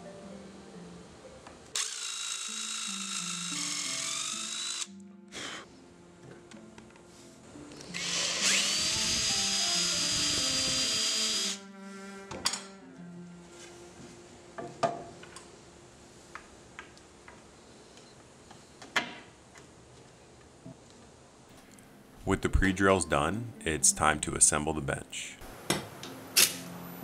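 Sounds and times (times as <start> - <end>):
cordless drill boring into wood: 1.8 - 4.9, 7.9 - 11.6.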